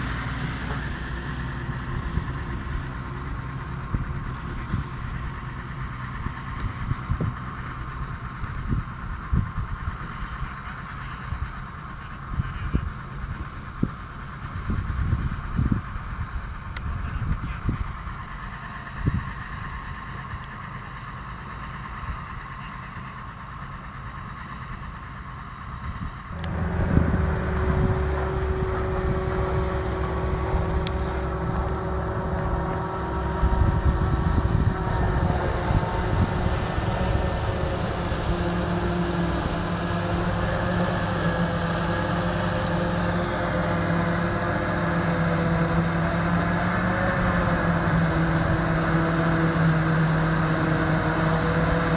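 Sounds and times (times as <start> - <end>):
forage harvester drone: 0.0 - 51.9
tractor rumble: 0.0 - 51.9.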